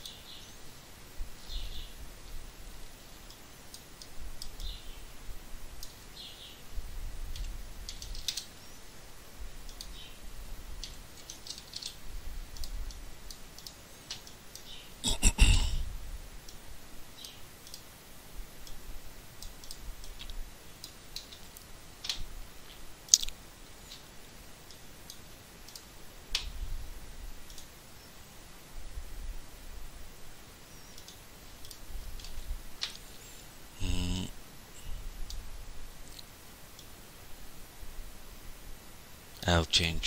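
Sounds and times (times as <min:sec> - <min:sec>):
computer mouse clicks: 0:03.3 - 0:04.8, 0:07.3 - 0:08.5, 0:09.6 - 0:10.1, 0:10.8 - 0:14.8, 0:17.2 - 0:17.9, 0:19.4 - 0:22.2, 0:24.7 - 0:26.5, 0:27.4 - 0:27.7, 0:30.9 - 0:33.0.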